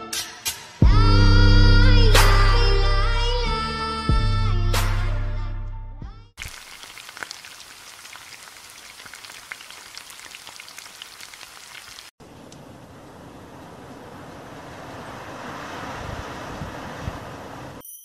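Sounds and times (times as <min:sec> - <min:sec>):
music: 0:00.0 - 0:06.4
steaming corn crackling hiss: 0:06.4 - 0:12.1.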